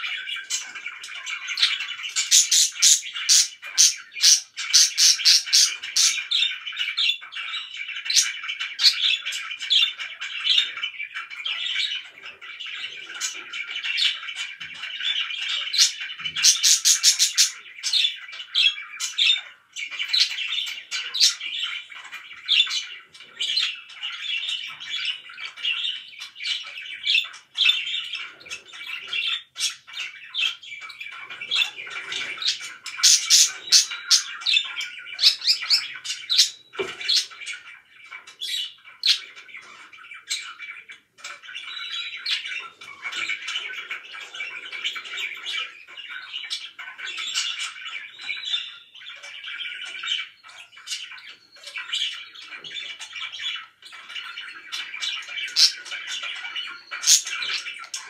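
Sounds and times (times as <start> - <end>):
budgerigars chattering and warbling: 0.0 - 58.0.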